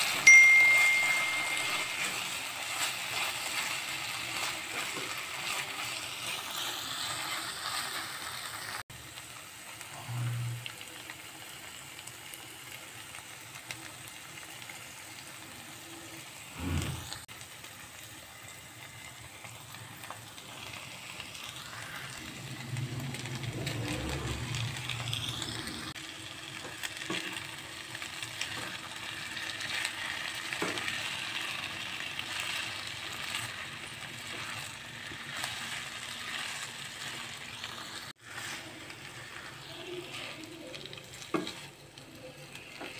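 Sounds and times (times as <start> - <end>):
sauce sizzling in a pan: 0.0 - 42.9
spatula stirring and scraping: 1.6 - 8.7, 29.6 - 42.9.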